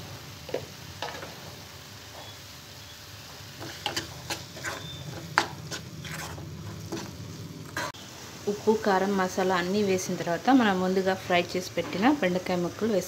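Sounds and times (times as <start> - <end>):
food sizzling: 0.0 - 13.0
spatula scraping a pan: 3.5 - 8.0.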